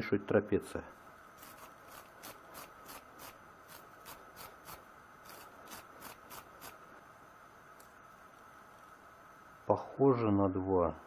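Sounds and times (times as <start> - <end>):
wire brush scrubbing metal screw: 1.4 - 6.8.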